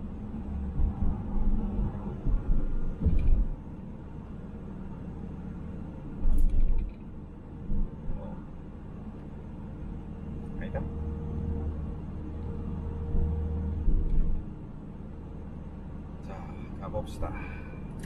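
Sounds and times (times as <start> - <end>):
car road rumble: 0.0 - 18.0
low thumps: 0.6 - 3.6.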